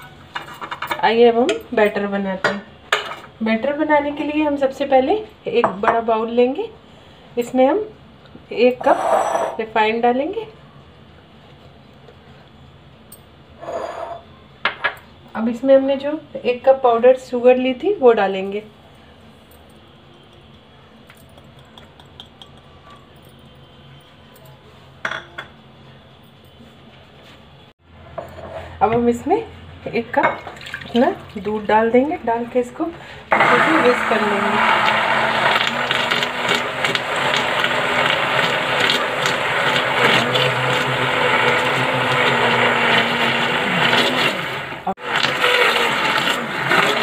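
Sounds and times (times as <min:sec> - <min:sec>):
kitchen room hum: 0:00.0 - 0:47.0
dishware clinking: 0:08.8 - 0:09.6
hand blender whirring in liquid: 0:33.3 - 0:47.0.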